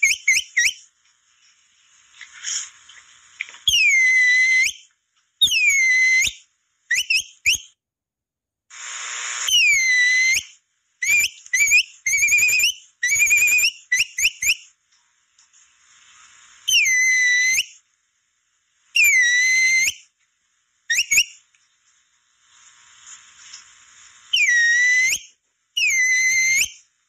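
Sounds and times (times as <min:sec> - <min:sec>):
swooping whistles: 0:00.0 - 0:00.9, 0:03.7 - 0:07.8, 0:09.4 - 0:14.7, 0:16.7 - 0:17.8, 0:19.0 - 0:20.0, 0:20.9 - 0:21.4, 0:24.3 - 0:26.8
short rising whistle chirps: 0:09.4 - 0:14.6, 0:24.3 - 0:26.8.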